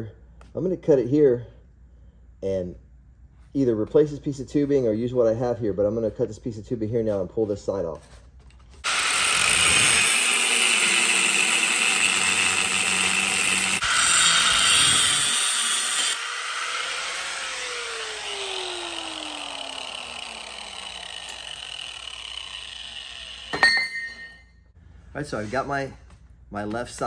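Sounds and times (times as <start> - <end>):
grinder cutting steel: 8.8 - 24.1
motor winding down whine: 8.9 - 23.6.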